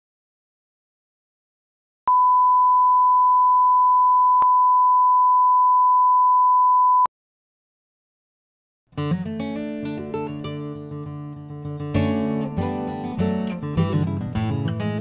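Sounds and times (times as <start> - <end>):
steady test tone beep: 2.1 - 7.1.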